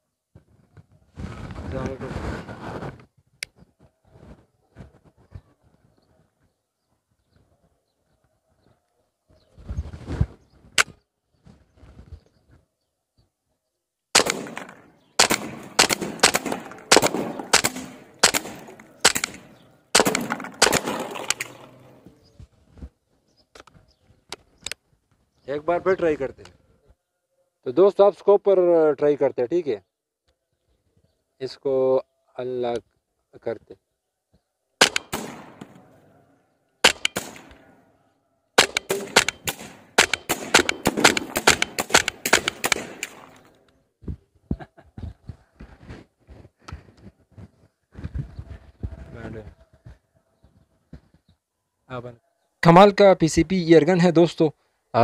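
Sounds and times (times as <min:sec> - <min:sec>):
air rifle shots: 0:14.2 - 0:22.0, 0:34.8 - 0:36.0, 0:36.8 - 0:37.8, 0:38.6 - 0:43.6.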